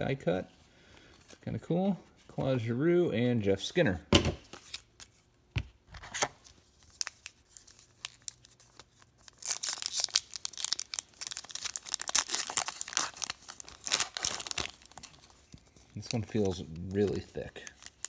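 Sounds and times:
foil pack crinkling and tearing: 0:06.7 - 0:18.0.

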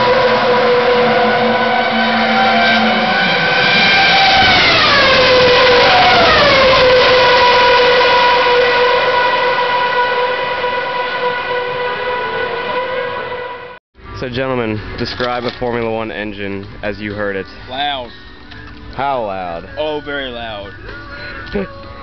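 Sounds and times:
racing car engines screaming: 0:00.0 - 0:13.8.

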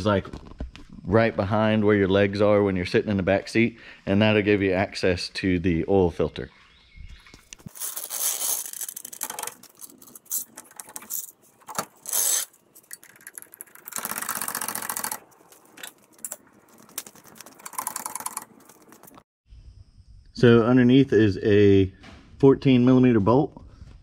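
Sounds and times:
metal jack ratcheting: 0:07.7 - 0:19.1.

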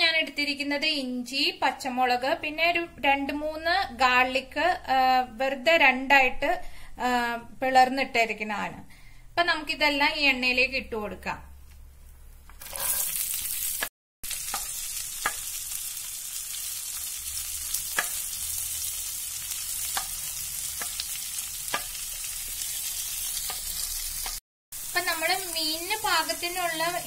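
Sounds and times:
shallots sizzling in hot oil: 0:12.6 - 0:27.0.

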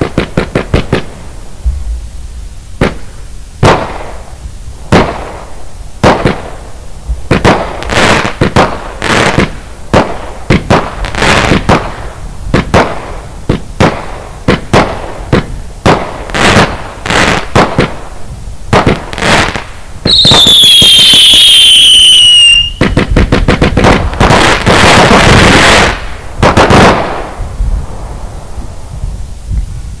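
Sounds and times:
firework cake firing bangs: 0:00.0 - 0:02.0, 0:02.8 - 0:06.6, 0:07.2 - 0:27.5
falling whistle: 0:20.1 - 0:22.9.

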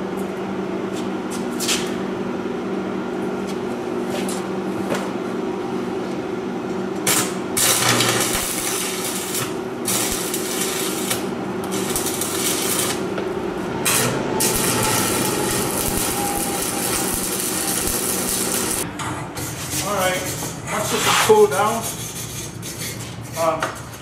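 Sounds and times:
arc welder crackling and hissing: 0:07.0 - 0:18.9
low hum: 0:07.6 - 0:19.0.

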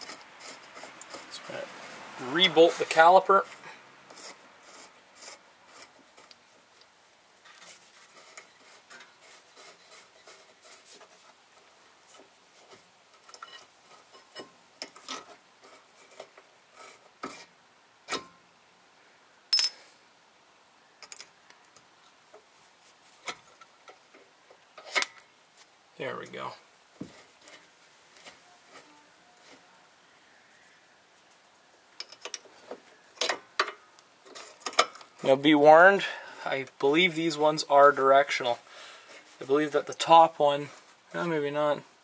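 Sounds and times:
metallic clicks and scraping: 0:00.0 - 0:18.4, 0:21.0 - 0:22.5, 0:23.1 - 0:25.4, 0:27.1 - 0:29.7, 0:31.2 - 0:35.4.

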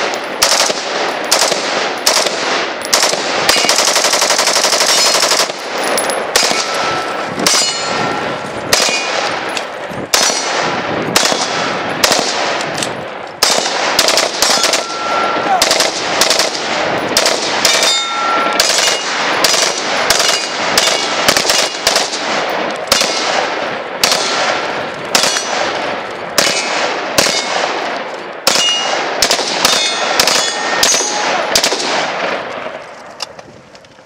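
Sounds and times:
rifle shots echoing: 0:00.0 - 0:32.8
ringing metal pings: 0:04.9 - 0:09.7, 0:14.4 - 0:15.6, 0:17.0 - 0:19.2, 0:28.5 - 0:29.0, 0:29.7 - 0:31.2.

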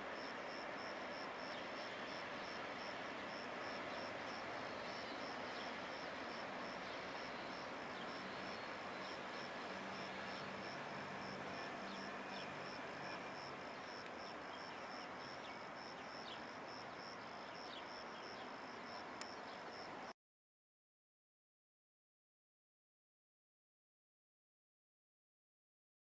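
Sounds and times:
steady hiss: 0:00.0 - 0:20.1.

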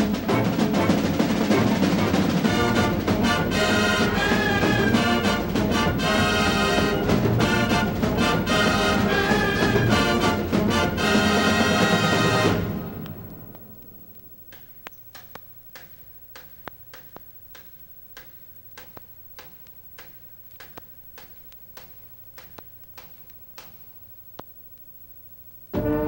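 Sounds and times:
faint cassette hum: 0:00.0 - 0:25.8
drumstick clicks: 0:13.0 - 0:24.9.

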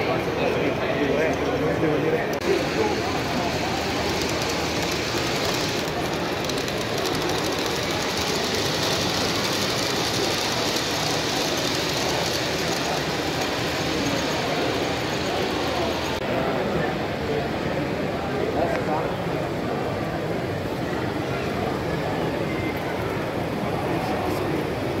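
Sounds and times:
model train rolling: 0:02.4 - 0:16.2
wheels clicking on rails: 0:02.4 - 0:16.2.

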